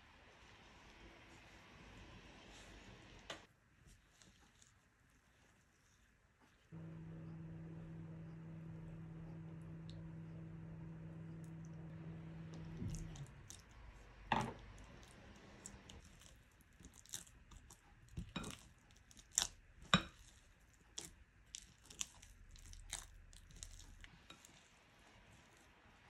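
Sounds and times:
dough squishing: 2.5 - 26.0
low hum: 6.7 - 16.0.

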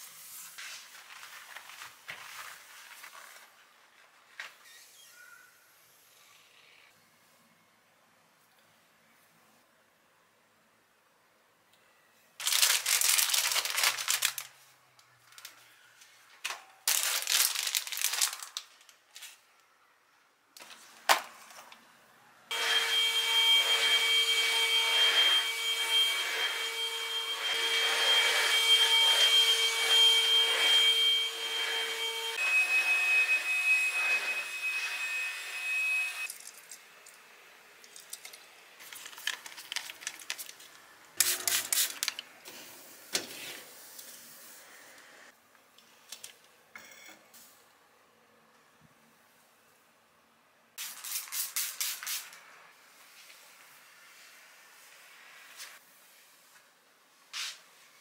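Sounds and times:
aluminium foil crinkling: 12.4 - 14.6, 16.8 - 19.4, 37.8 - 42.3
vacuum cleaner whining: 22.5 - 36.3.

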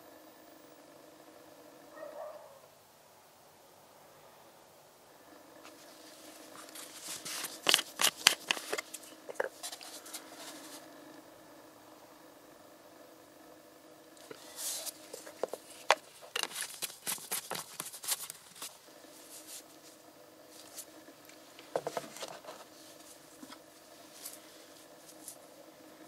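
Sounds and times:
faint steady hum: 0.0 - 26.0
plastic bottle rustling and tapping: 6.6 - 10.1, 14.3 - 18.7, 21.7 - 22.6.

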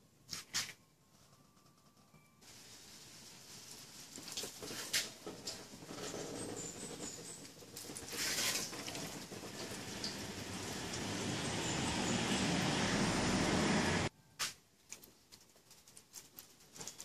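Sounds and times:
water spraying onto car: 2.5 - 14.1.

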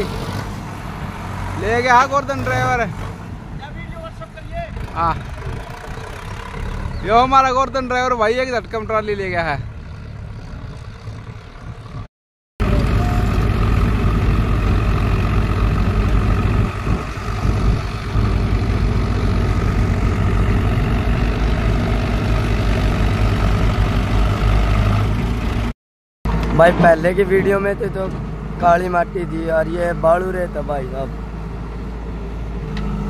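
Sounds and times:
heavy diesel engines droning: 0.0 - 25.7, 26.3 - 33.0
tractor hauling trolley: 0.0 - 25.7.

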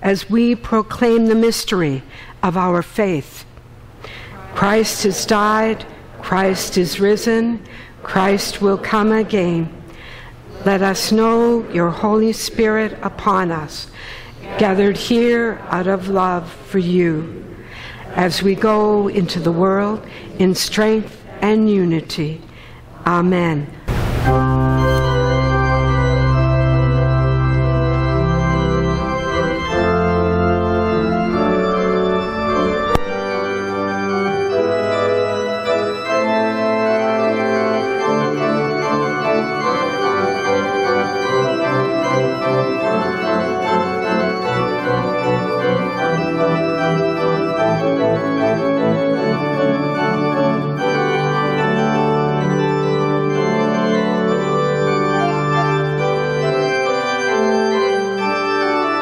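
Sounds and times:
organ playing sustained chords: 0.0 - 59.0
deep organ pedal notes: 23.2 - 59.0.

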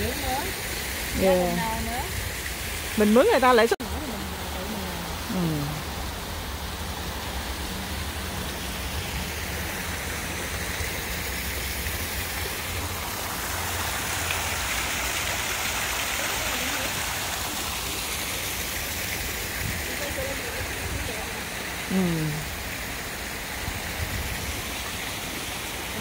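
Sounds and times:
water feature splashing: 0.0 - 26.0.

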